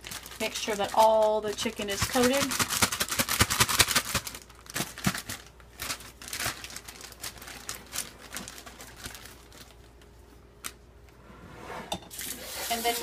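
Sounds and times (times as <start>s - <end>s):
plastic bag crinkling: 0.0s - 10.8s.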